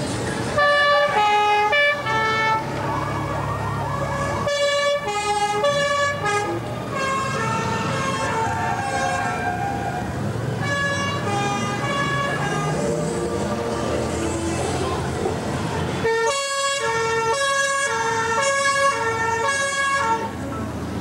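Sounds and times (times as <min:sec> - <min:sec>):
motorcycle engines humming: 0:00.0 - 0:21.0
siren-like wails: 0:00.7 - 0:06.3.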